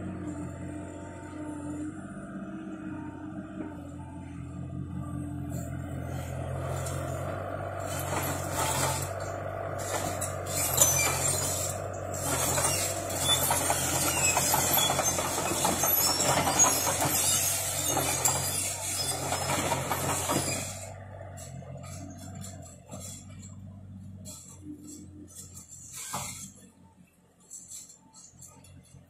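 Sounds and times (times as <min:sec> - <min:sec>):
excavator engine running: 0:00.0 - 0:29.0
rattling hissing machine clatter: 0:06.7 - 0:26.6.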